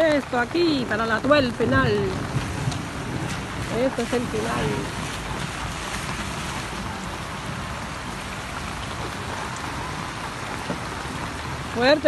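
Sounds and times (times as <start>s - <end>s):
floodwater rushing: 0.0s - 12.0s
heavy rain falling: 0.0s - 12.0s.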